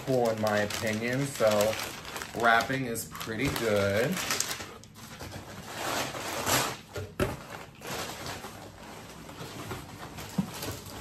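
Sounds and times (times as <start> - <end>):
cardboard box and paper rustling: 0.0 - 11.0.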